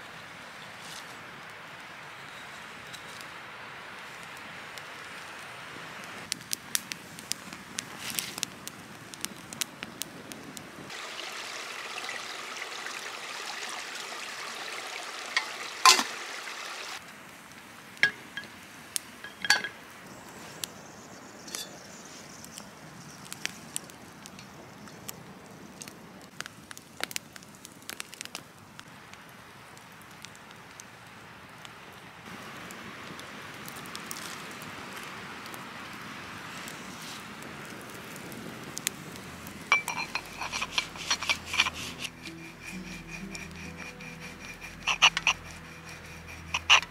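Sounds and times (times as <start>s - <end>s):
twig campfire crackling: 0.0s - 46.9s
metal kettle clinks: 19.2s - 19.8s, 39.7s - 41.7s.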